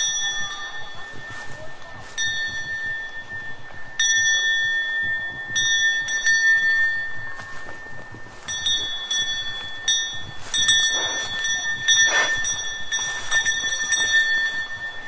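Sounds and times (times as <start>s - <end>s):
cowbell clanking: 0.0s - 15.0s.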